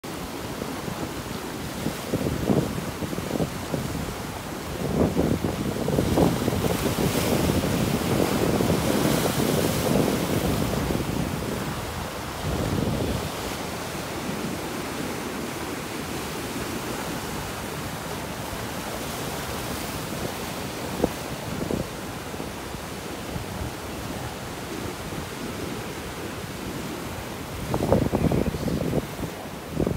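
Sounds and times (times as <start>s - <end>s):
surf washing over rocks: 0.0s - 29.9s
wind buffeting microphone: 1.7s - 14.7s, 26.4s - 29.9s.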